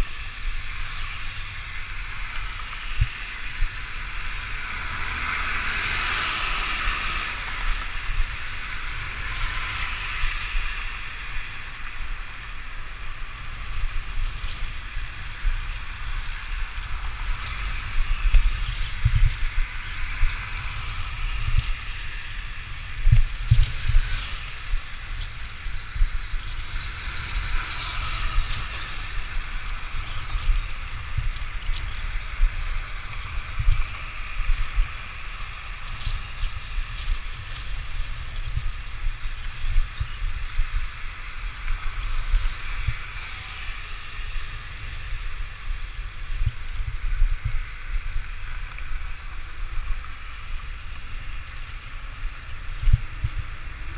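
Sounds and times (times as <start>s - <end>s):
cars passing: 0.0s - 53.9s
road and tyre noise: 0.0s - 53.9s
wind buffeting microphone: 0.0s - 53.9s.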